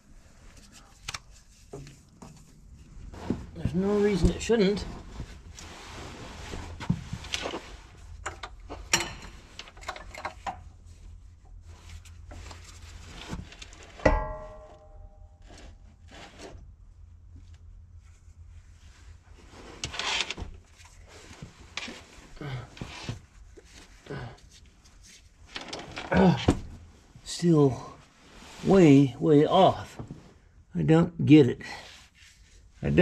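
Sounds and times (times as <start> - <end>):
low steady hum: 0.0 - 31.6
metal clinks and knocks: 8.2 - 10.7, 13.2 - 15.8
sharp metal clank: 14.0 - 15.3.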